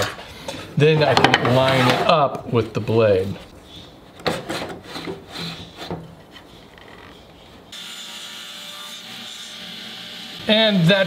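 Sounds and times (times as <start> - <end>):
wooden board scraping on metal: 1.0 - 2.2.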